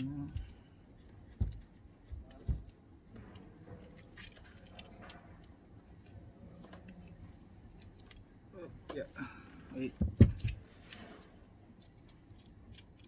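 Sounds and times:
light clicks and rattles: 0:00.0 - 0:09.1.

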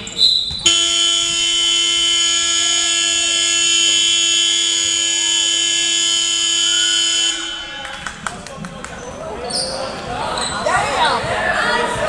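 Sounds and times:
electronic game buzzer: 0:00.7 - 0:07.6.

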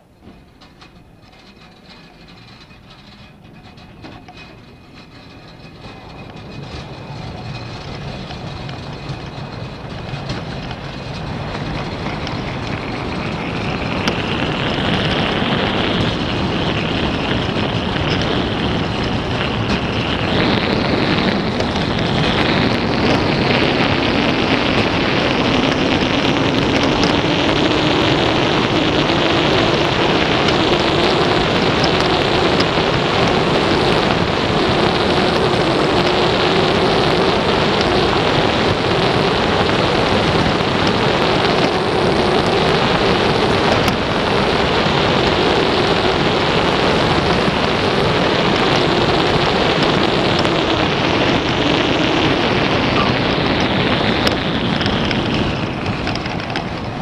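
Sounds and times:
bobsled rumbling down track: 0:00.0 - 0:57.0.

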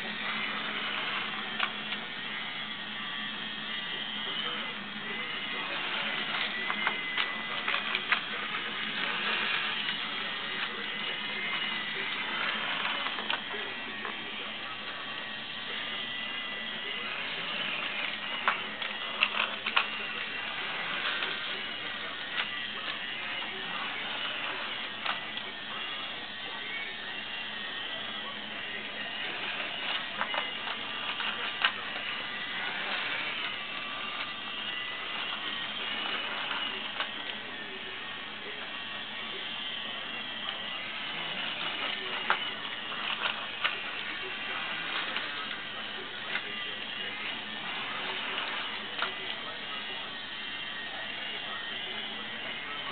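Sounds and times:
toy train motor whirring: 0:00.0 - 0:52.9.

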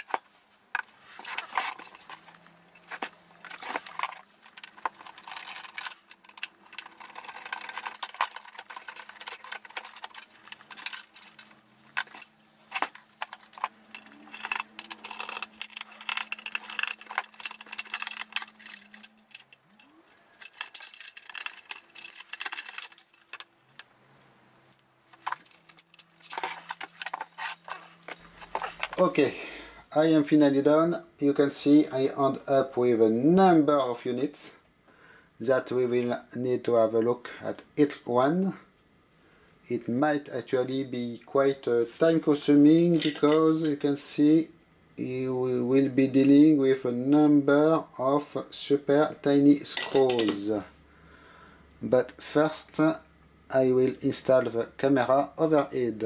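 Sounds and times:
metal clinking and rattling: 0:00.0 - 0:29.1, 0:42.9 - 0:43.5, 0:49.7 - 0:50.4.

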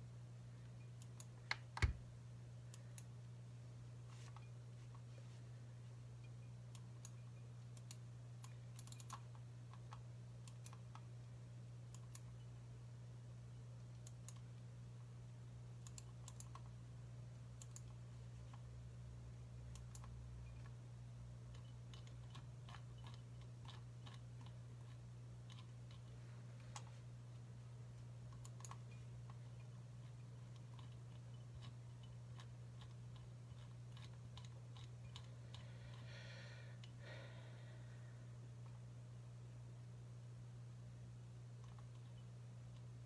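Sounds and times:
low electrical hum: 0:00.0 - 0:43.0
typing on computer keyboard: 0:07.8 - 0:11.1, 0:15.8 - 0:16.7, 0:17.6 - 0:18.0.

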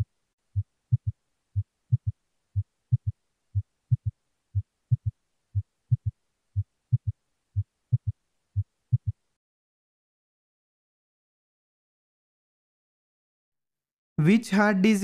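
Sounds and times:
heartbeat thuds: 0:00.6 - 0:09.2.

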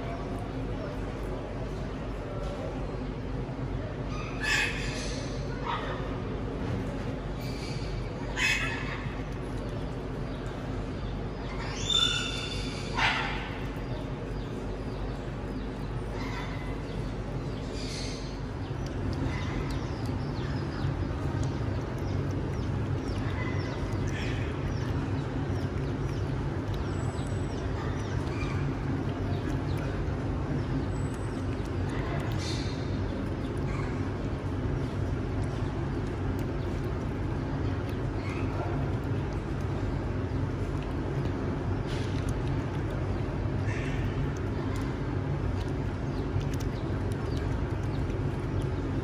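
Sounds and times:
steady low hum: 0:00.0 - 0:49.0.

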